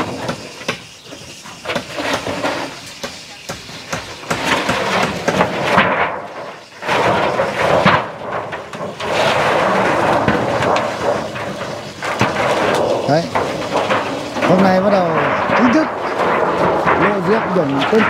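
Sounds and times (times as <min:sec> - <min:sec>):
form sheets scraping concrete: 0:00.0 - 0:18.0.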